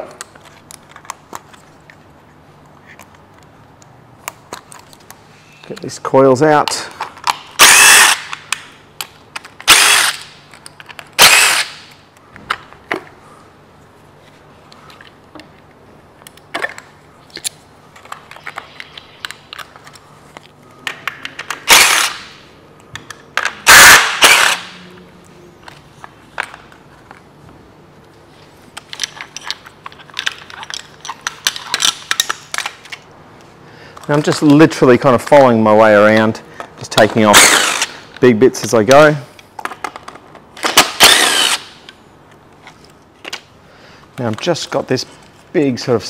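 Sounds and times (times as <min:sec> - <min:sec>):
clicks and clatter of parts: 0:00.0 - 0:05.9, 0:06.6 - 0:13.2, 0:13.8 - 0:24.7, 0:25.6 - 0:27.3, 0:28.0 - 0:38.3, 0:38.9 - 0:45.5
cordless drill running: 0:07.6 - 0:08.2, 0:09.7 - 0:10.2, 0:11.2 - 0:11.7, 0:21.7 - 0:22.2, 0:37.4 - 0:38.0, 0:41.0 - 0:41.7.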